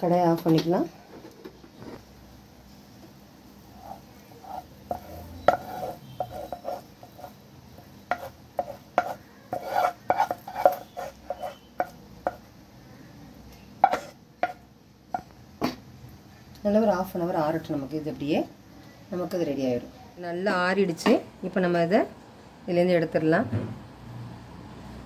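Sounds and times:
wooden spatula scraping metal pan: 3.7 - 12.4, 13.8 - 14.6.

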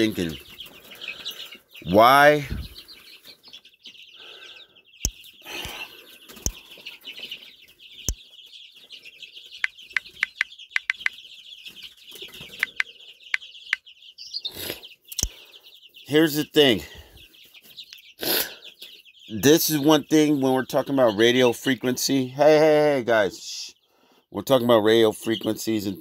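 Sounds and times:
touchscreen typing taps: 10.0 - 11.1, 12.6 - 12.8.

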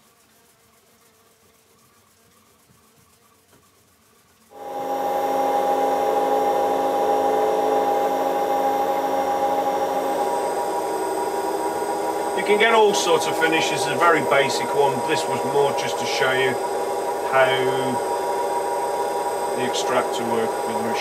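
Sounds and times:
cloth rubbing on spinning wood: 0.0 - 21.0
dust extractor droning: 4.5 - 21.0.

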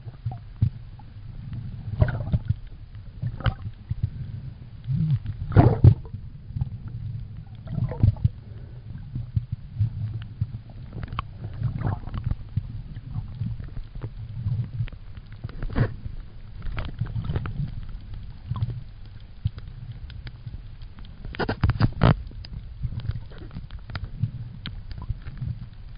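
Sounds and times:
underwater rumble and swash: 0.0 - 25.9
sharp clicks and pops: 16.6 - 25.9.

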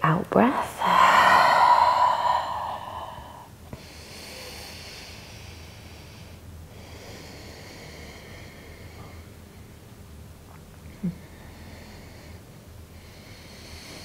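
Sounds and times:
woman breathing: 0.4 - 9.3.

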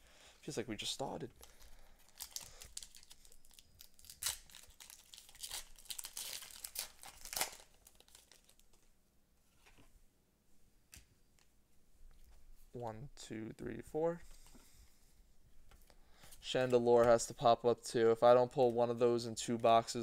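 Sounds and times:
foil wrapper tearing and crinkling: 2.1 - 8.6.

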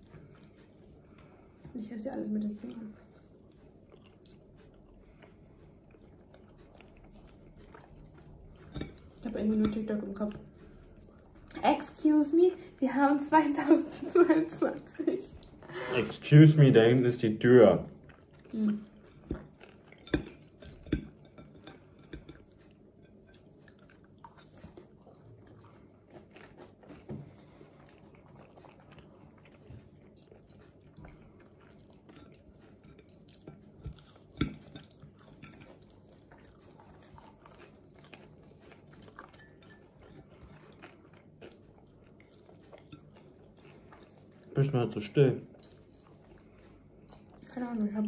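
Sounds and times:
quiet chewing: 0.0 - 48.0
forks clinking on plates: 19.9 - 23.4, 32.2 - 35.8, 39.1 - 40.2, 45.5 - 46.2.

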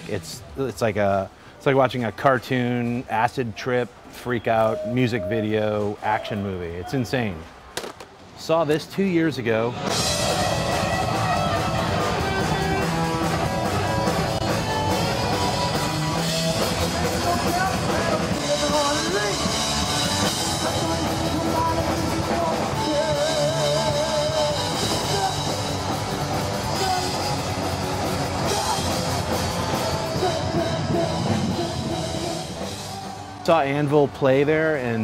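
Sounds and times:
loud rock music: 9.8 - 34.0.

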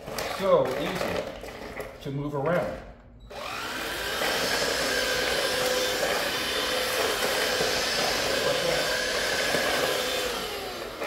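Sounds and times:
stick vacuum running: 0.0 - 11.0.

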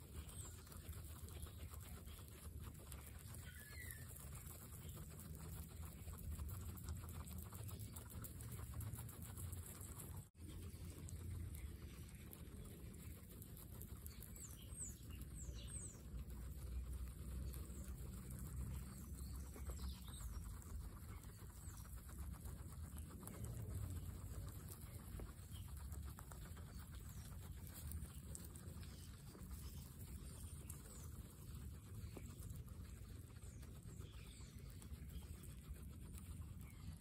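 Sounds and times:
guinea pigs chewing grass: 0.0 - 37.0.

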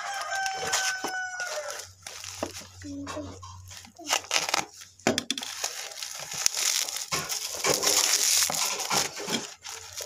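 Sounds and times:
plastic mailer crinkling: 0.0 - 10.0
cutter slitting plastic mailer: 3.8 - 10.0.

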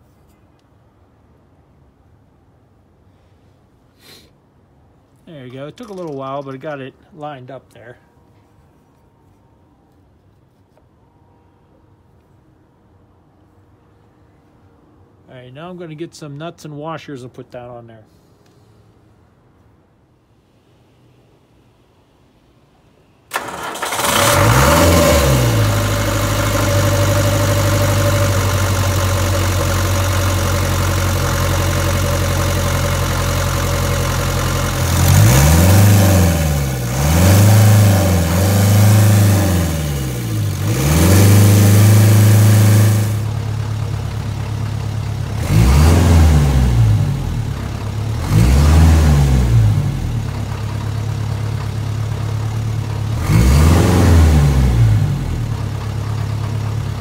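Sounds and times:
diesel engine starting and revving: 23.3 - 57.0.

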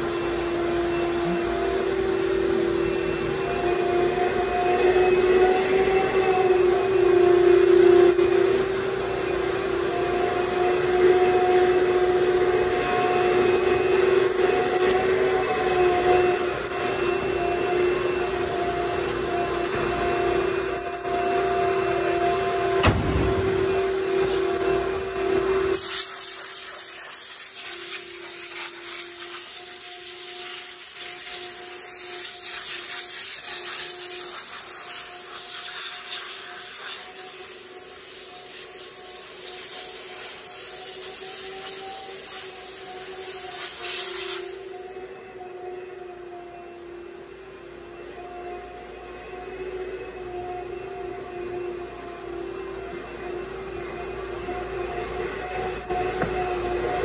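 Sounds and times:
sharp knock: 22.8 - 23.7
rushing hiss: 25.7 - 30.0.

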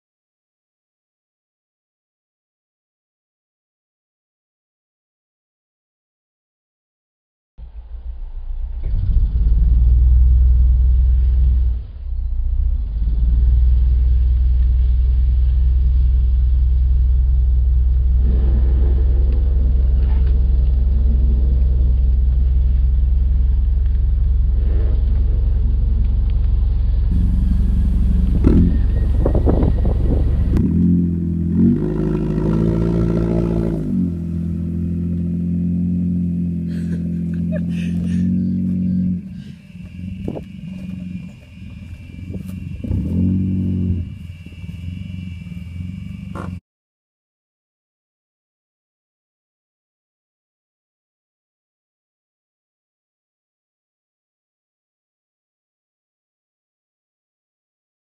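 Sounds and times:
wheels spinning on grass and dirt: 7.6 - 46.6
car engine at high revs: 12.6 - 46.6.

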